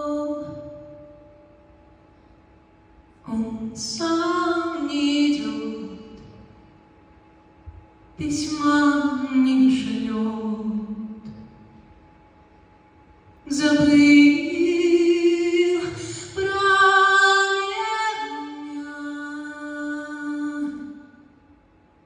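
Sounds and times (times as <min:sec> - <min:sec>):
woman singing: 0:00.0 - 0:00.9, 0:03.3 - 0:06.3, 0:08.2 - 0:11.3, 0:13.5 - 0:21.2.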